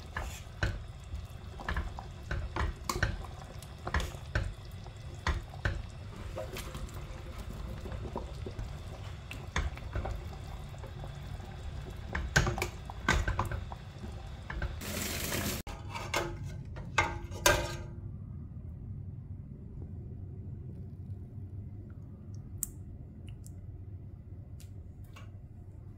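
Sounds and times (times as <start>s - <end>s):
stew sloshing in pot: 0.0s - 15.8s.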